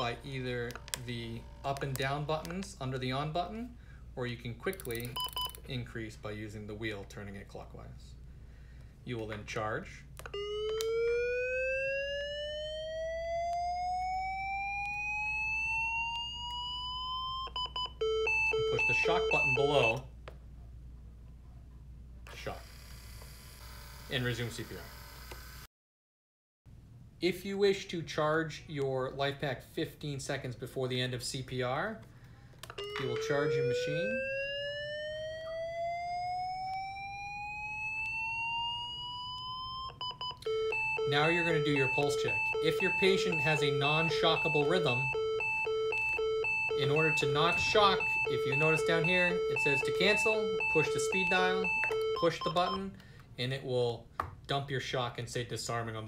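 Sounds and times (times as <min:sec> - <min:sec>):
defibrillator charging tone: 0:10.3 - 0:20.0, 0:32.8 - 0:52.9.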